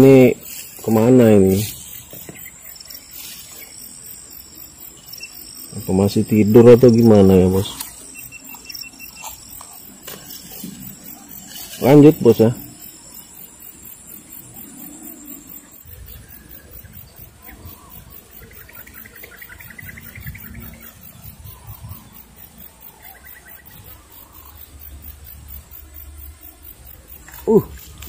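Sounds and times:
rapid chirring trill: 0.0 - 25.4.

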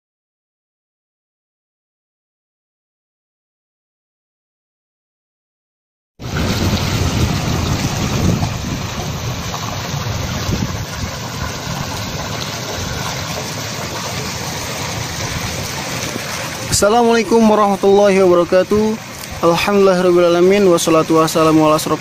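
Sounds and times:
low uneven rumble: 6.2 - 22.0.

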